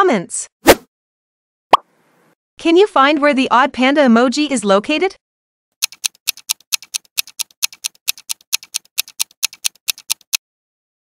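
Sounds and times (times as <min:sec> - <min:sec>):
clock ticking: 0:05.8 - 0:10.4.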